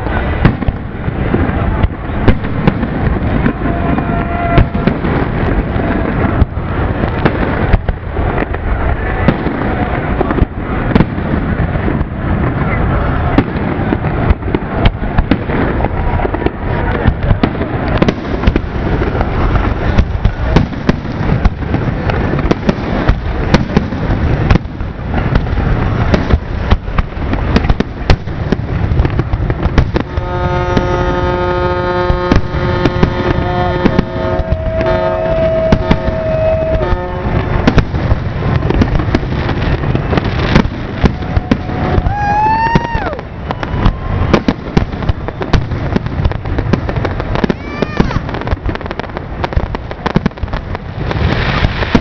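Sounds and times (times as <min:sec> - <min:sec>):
fireworks bursts and bangs: 0:00.0 - 0:52.0
rising and falling whistle: 0:34.4 - 0:37.0.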